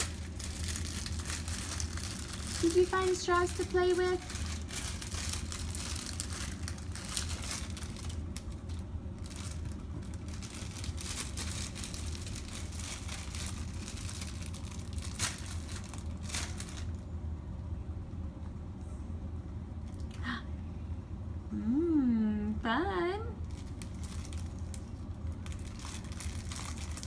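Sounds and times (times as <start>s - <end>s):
plastic bag crinkling: 0.0s - 17.0s, 23.4s - 27.0s
steady low hum: 0.0s - 27.0s.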